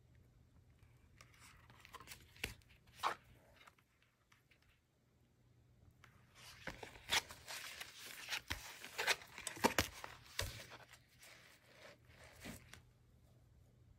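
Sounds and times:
paper pages rustling: 6.3 - 12.9.

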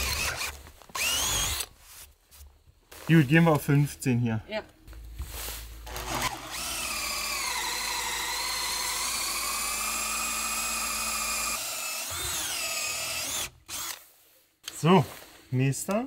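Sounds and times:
electric drill boring into wood: 0.0 - 1.7, 5.8 - 14.0.

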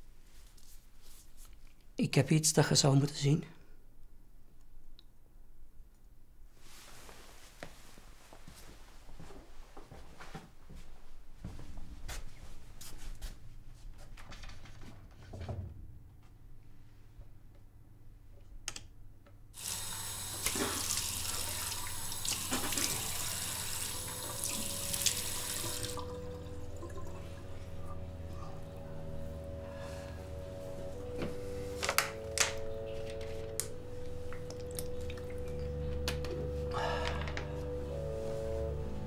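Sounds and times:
tap water running into basin: 19.6 - 27.9, 34.3 - 35.7.

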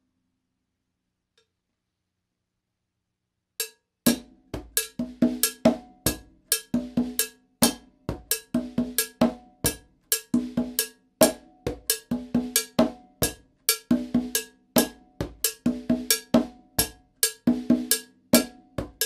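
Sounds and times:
stick striking cowbell: 3.6 - 4.2
conga drum pattern: 4.1 - 19.0.

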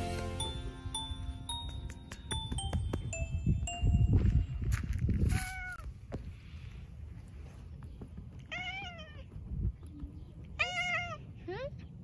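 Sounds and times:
cat meowing: 8.5 - 9.2, 10.6 - 11.2.

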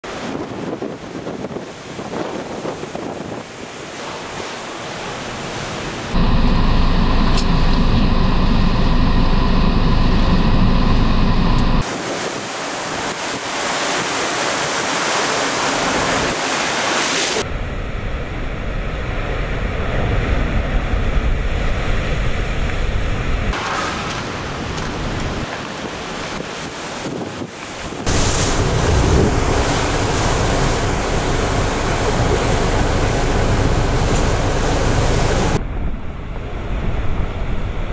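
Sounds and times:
waves breaking on shore: 0.0 - 7.9, 11.8 - 17.5, 18.1 - 35.6
wind buffeting microphone: 0.1 - 4.6, 17.4 - 37.9.

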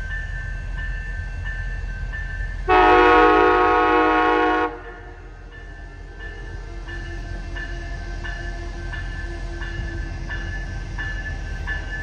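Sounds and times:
low train rumble: 0.0 - 12.0
train horn blast: 2.7 - 5.4
bell ringing steadily: 5.4 - 12.0.

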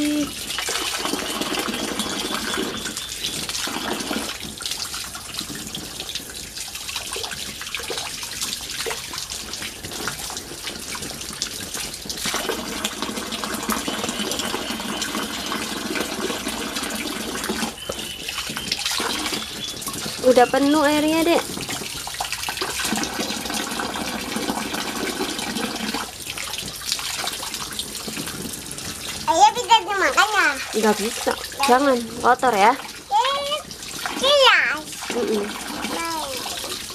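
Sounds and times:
water pouring into pool: 0.0 - 36.9.

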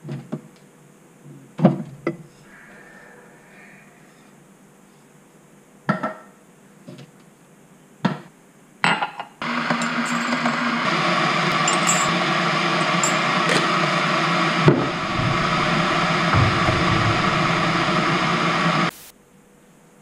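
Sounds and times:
electric kettle hissing: 9.4 - 19.1.

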